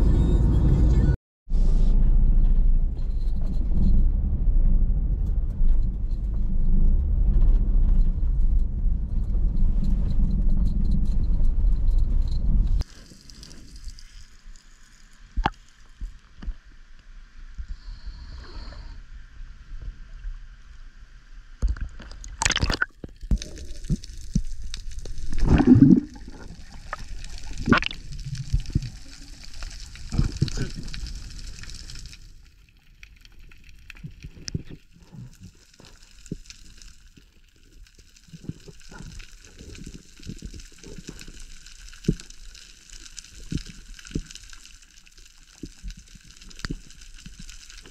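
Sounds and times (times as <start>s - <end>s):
car driving rumble: 0.0s - 12.8s
water splashes: 21.6s - 32.4s
water lapping and gurgling: 25.0s - 32.1s.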